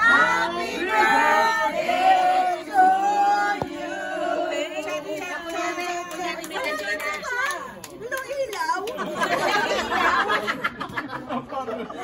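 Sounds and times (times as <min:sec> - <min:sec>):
group singing long held notes: 0:00.0 - 0:06.4.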